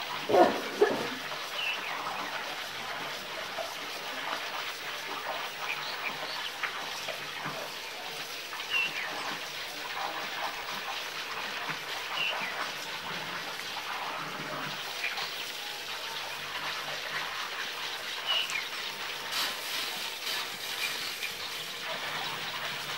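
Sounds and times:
steady outdoor hiss: 0.0s - 22.9s.

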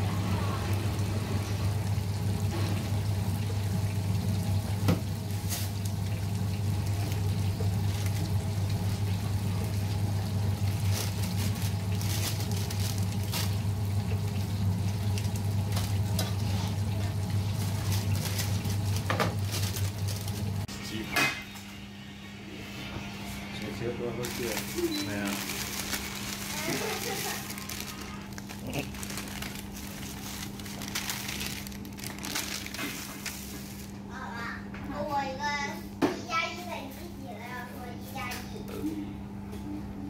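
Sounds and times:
frying oil sizzling: 0.0s - 20.7s, 24.2s - 34.2s.

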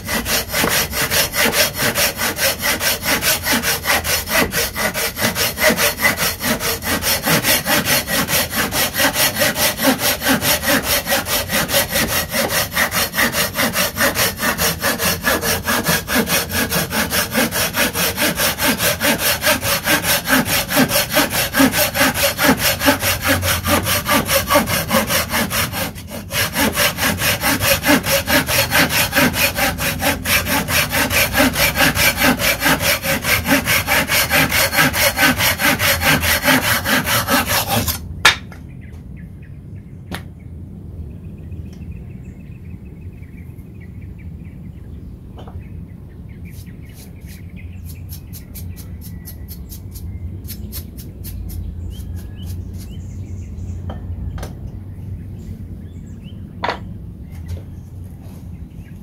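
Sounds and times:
pull saw cutting wood: 0.0s - 38.1s.

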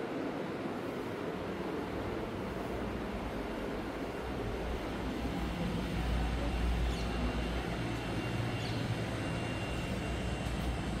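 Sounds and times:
low rumble of town ambience: 0.0s - 11.0s.

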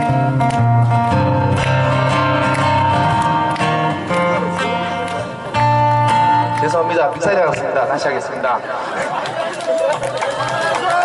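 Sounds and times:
acoustic guitar fingerstyle: 0.0s - 7.7s.

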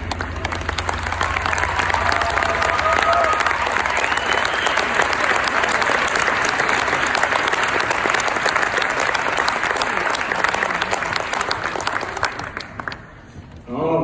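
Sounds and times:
audience applauding: 0.0s - 13.5s.

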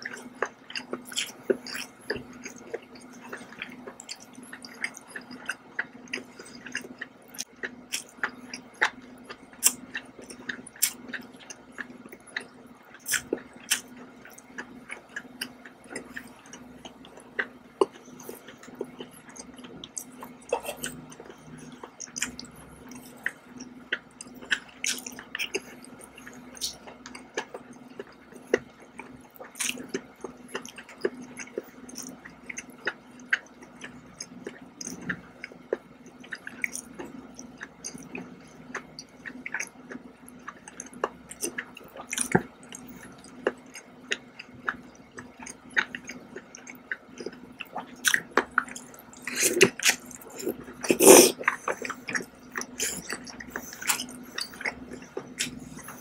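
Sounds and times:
chewing: 0.0s - 56.0s
faint steady hum: 0.0s - 56.0s
wet eating clicks and smacks: 0.0s - 56.0s.

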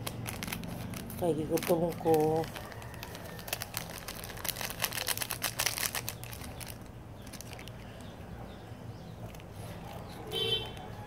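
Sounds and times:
plastic packet crinkling: 0.0s - 8.1s.

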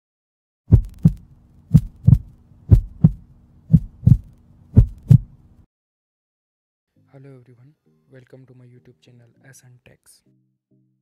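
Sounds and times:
heartbeat thumps: 0.7s - 5.4s
steady low hum: 0.7s - 5.6s.

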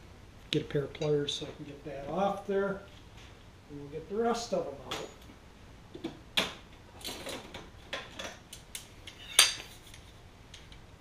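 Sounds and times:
metal tools clinking: 9.1s - 10.0s.

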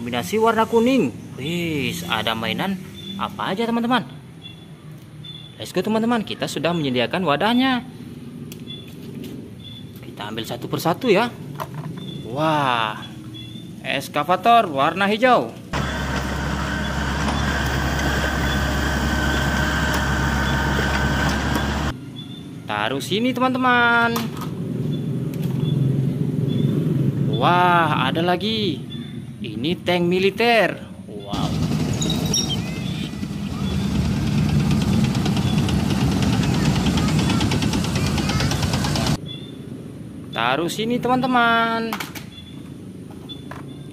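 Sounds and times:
excavator diesel engine running: 15.8s - 21.9s, 31.4s - 39.2s
tank track clatter: 15.8s - 21.9s, 31.4s - 39.2s.

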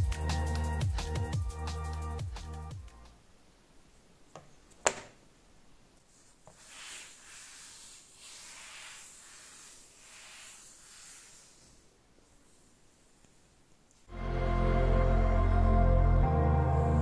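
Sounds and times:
hand rubbing cloth desk pad: 6.0s - 13.6s.

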